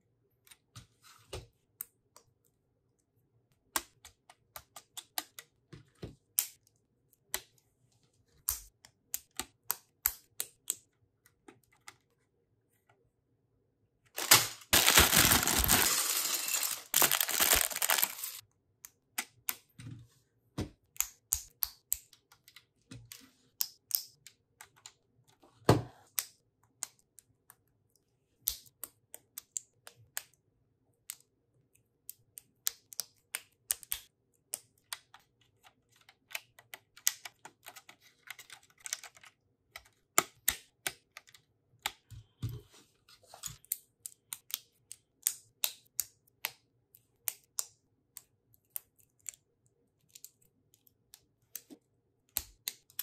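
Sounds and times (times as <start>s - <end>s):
plastic bag crinkling and tearing: 14.2s - 18.4s.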